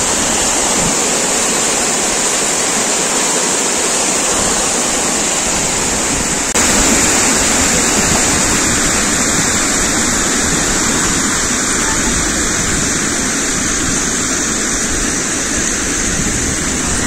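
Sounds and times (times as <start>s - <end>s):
water cascading down stone wall: 0.0s - 17.0s.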